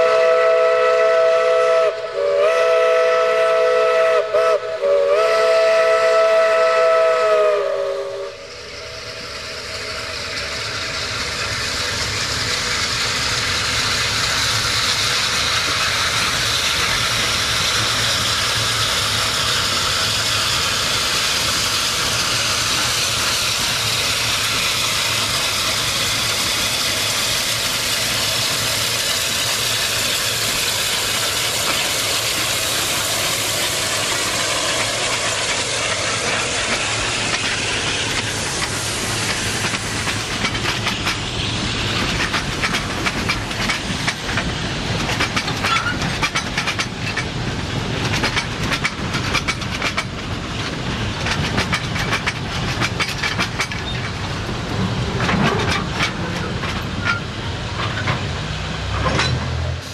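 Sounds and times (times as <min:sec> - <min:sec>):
steam whistle: 0:00.0 - 0:08.6
steam hissing: 0:00.0 - 0:59.9.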